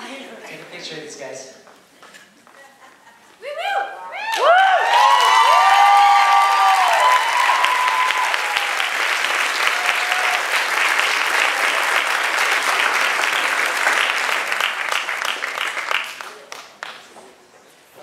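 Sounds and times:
people cheering: 3.4 - 16.0
crowd applauding: 4.2 - 17.2.

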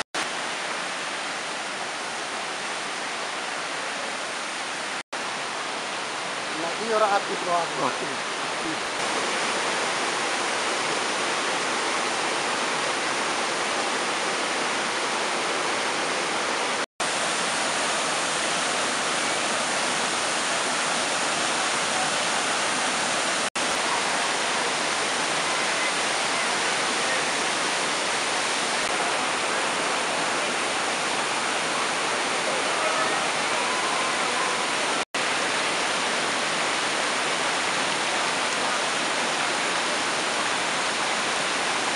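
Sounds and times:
waterfall rushing: 0.0 - 41.9.

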